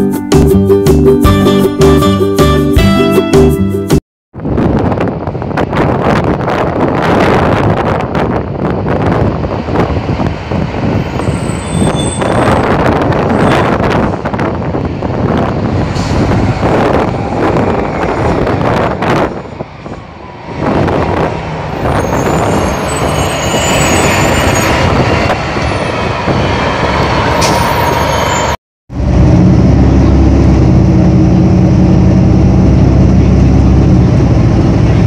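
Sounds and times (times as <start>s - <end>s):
wind on microphone: 4.4s - 27.4s
bus driving past: 8.3s - 35.0s.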